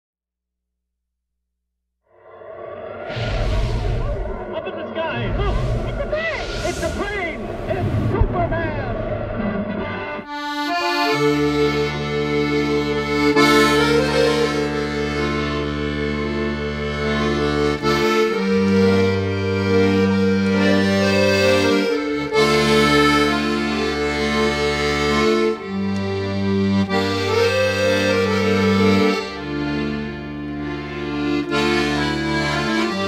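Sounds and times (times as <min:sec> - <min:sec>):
accordion folk melody: 0:09.7 - 0:33.0.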